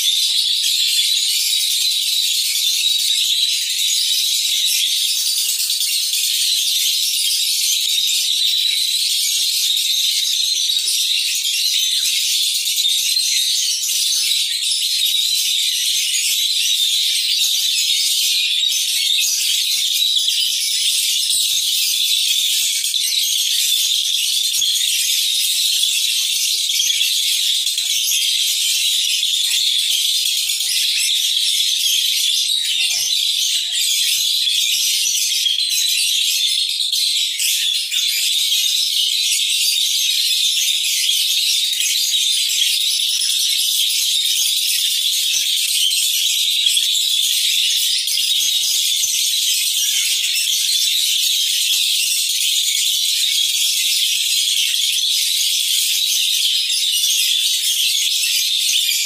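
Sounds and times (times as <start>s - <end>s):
lovebird high-pitched chattering trill: 0.0s - 59.0s.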